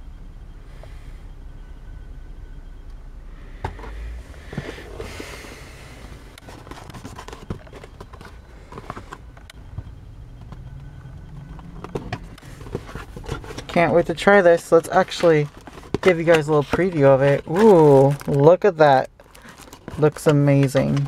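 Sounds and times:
low steady rumble: 0:00.0 - 0:21.0
cardboard box rustling: 0:06.4 - 0:09.2, 0:11.4 - 0:21.0.

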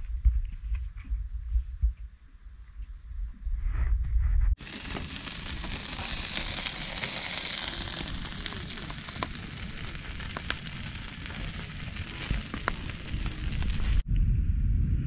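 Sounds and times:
wind rumble on microphone: 0:00.0 - 0:15.0
sausages sizzling: 0:04.6 - 0:14.0
wood fire crackling: 0:04.6 - 0:14.0.

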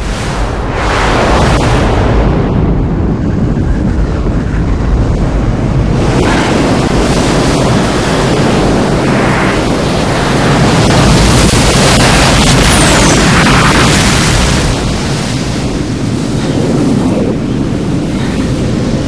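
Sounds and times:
rushing wind and surging water: 0:00.0 - 0:19.0.

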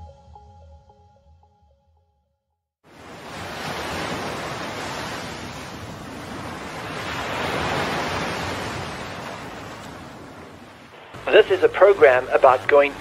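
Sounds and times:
ocean surf breaking: 0:02.9 - 0:13.0.

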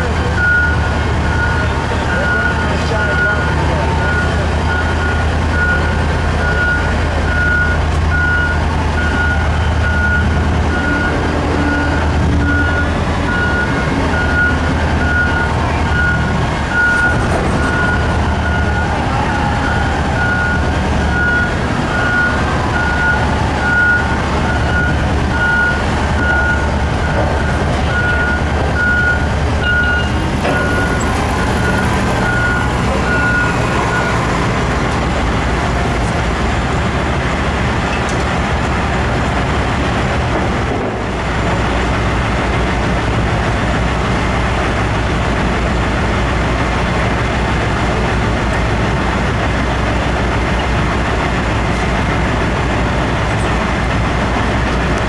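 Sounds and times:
diesel truck engine drone: 0:00.0 - 0:55.0
warning beeper beeping: 0:00.4 - 0:34.2.

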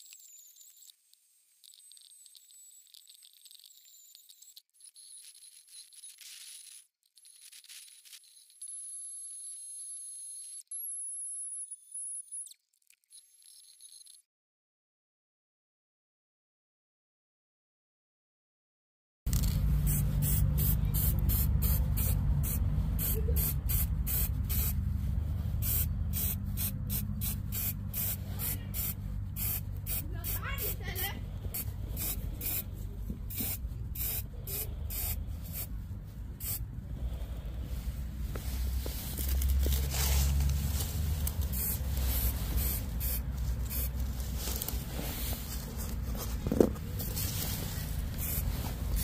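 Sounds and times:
steady low rumble: 0:19.3 - 0:49.0
aerosol spray can hissing: 0:19.4 - 0:24.8, 0:25.5 - 0:35.8, 0:36.4 - 0:36.6, 0:41.4 - 0:44.3, 0:47.6 - 0:49.0.

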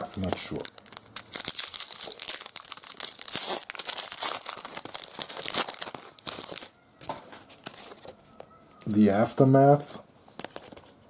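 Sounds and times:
foil wrapper crinkling and tearing: 0:00.0 - 0:06.8.

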